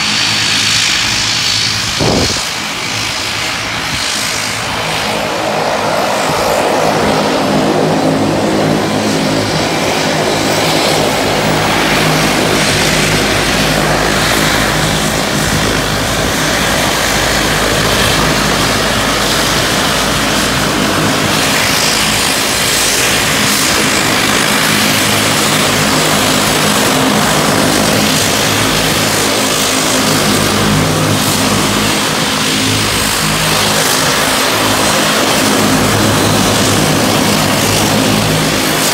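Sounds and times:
turboprop engines running: 0.0 - 38.9.

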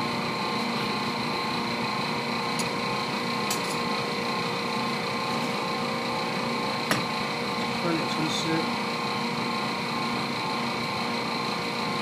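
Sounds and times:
kitchen machinery drone: 0.0 - 12.0.

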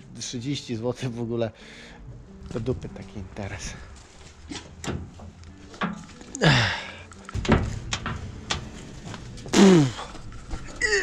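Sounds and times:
metal latch clicks and clanks: 4.5 - 6.4, 7.2 - 8.8.

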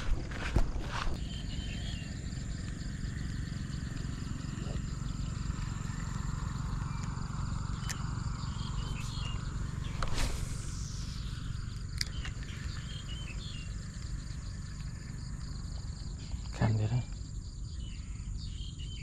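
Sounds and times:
low rumble: 0.0 - 16.5
high insect drone: 0.0 - 19.0
faint chirps: 1.1 - 19.0.

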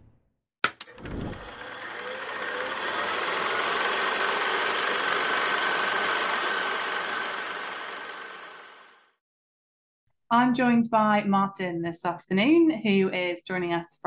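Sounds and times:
buzzing drone with rapid pulse: 0.9 - 9.1.

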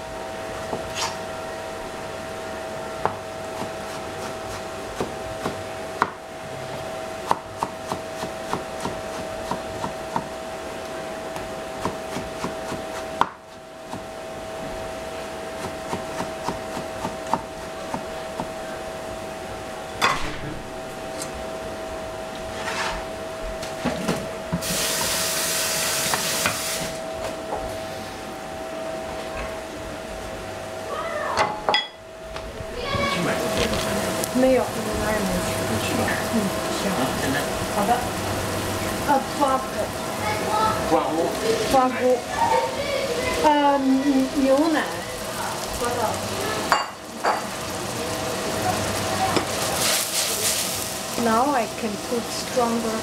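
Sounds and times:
steady hum: 0.0 - 53.0
hiss: 24.6 - 27.0.

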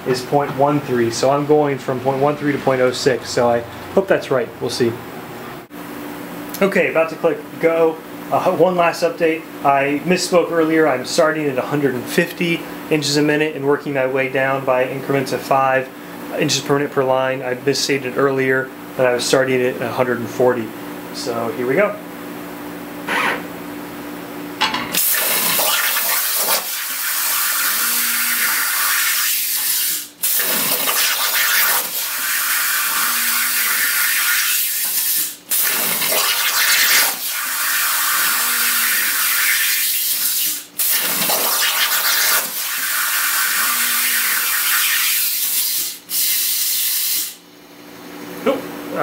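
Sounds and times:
plasma torch cutting hiss: 25.0 - 47.4.

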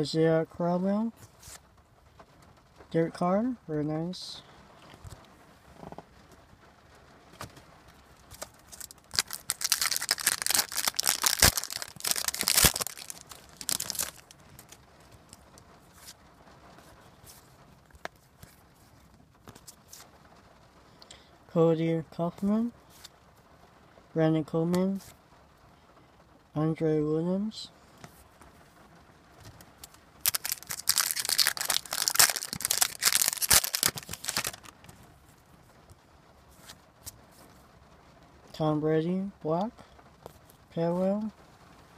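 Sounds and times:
wrapper crinkling and tearing: 8.2 - 16.2, 29.8 - 35.0.

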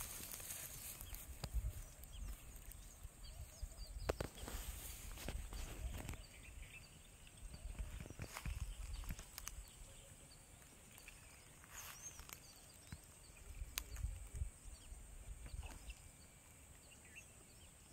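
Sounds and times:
footsteps through dry grass: 0.0 - 6.7, 7.6 - 9.7, 10.9 - 14.3
faint bird chirps: 0.0 - 17.9.

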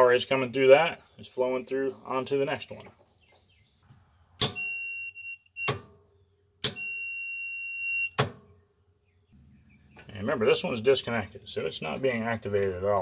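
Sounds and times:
high continuity beep: 4.5 - 5.8, 6.7 - 8.2
solenoid clicking: 6.6 - 6.8.

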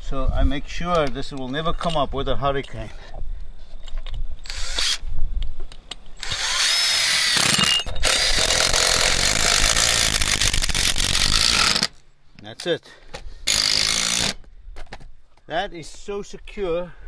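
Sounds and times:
cordless drill driving screw: 4.4 - 5.0, 6.2 - 11.9, 13.5 - 14.4.

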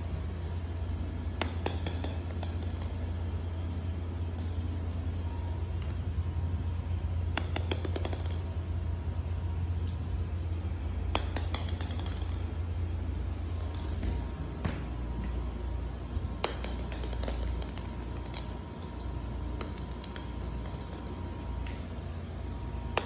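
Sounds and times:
steady low hum: 0.0 - 23.0
plastic ball bouncing on tiles: 1.3 - 5.2, 6.7 - 8.6, 10.6 - 14.9, 16.3 - 22.1.

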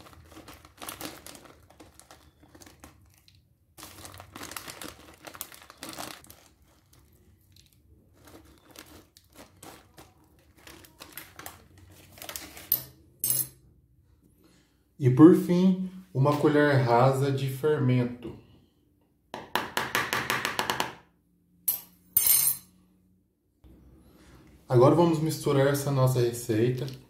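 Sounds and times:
plastic packet crinkling: 0.0 - 12.7.

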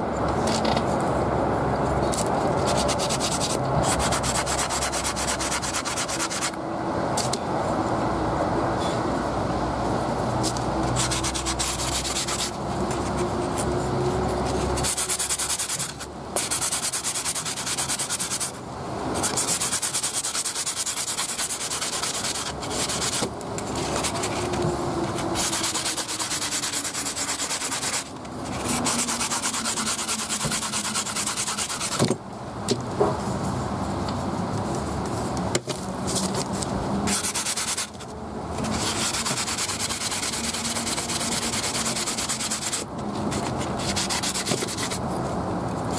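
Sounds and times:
sanding sponge scrubbing: 2.6 - 6.6, 10.3 - 18.6, 19.2 - 32.1, 37.1 - 38.0, 38.6 - 45.1.

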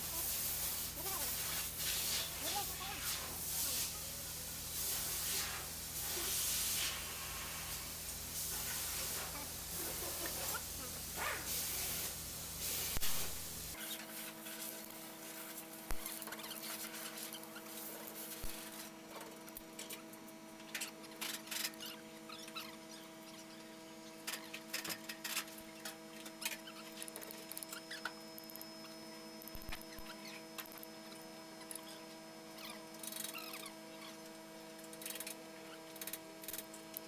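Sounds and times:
steady multi-tone hum: 0.0 - 37.0
small squeaks from bolts: 20.7 - 23.6, 24.3 - 28.2, 29.7 - 30.5, 31.2 - 34.2, 34.8 - 36.6.

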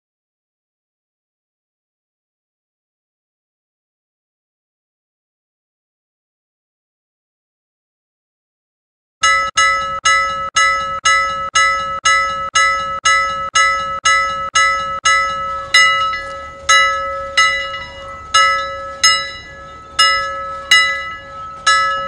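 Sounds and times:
timer bell ringing: 9.2 - 22.0.

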